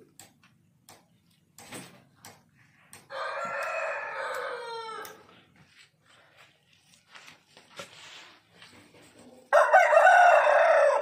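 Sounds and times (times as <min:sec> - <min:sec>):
sharp clicks: 0:00.0 - 0:05.2
rooster crowing: 0:03.1 - 0:05.3, 0:09.5 - 0:11.0.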